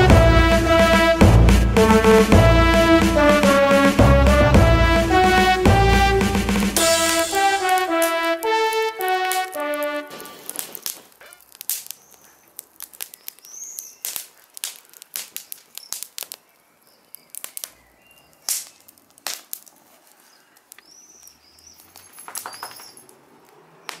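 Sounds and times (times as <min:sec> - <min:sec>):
wood fire crackling and popping: 0:00.0 - 0:04.9, 0:05.7 - 0:24.0
bird chirping: 0:11.9 - 0:14.5, 0:15.4 - 0:19.0, 0:20.1 - 0:24.0.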